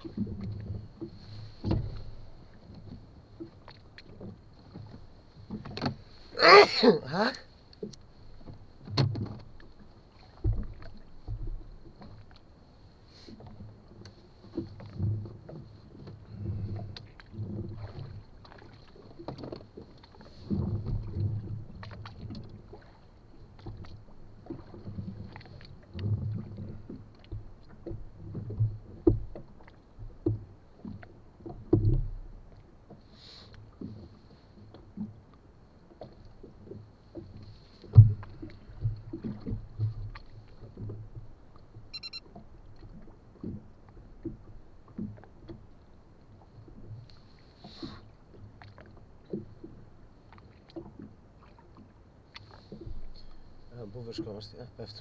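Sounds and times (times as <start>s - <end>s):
knocks on inflatable boat: 1.6s - 2.0s, 10.4s - 11.7s, 26.0s - 32.3s, 37.8s - 41.2s.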